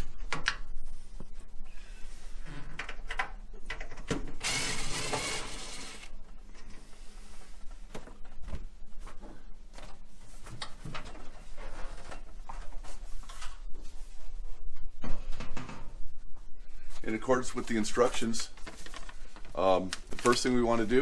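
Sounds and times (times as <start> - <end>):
cordless drill whirring: 4.4 - 6.1.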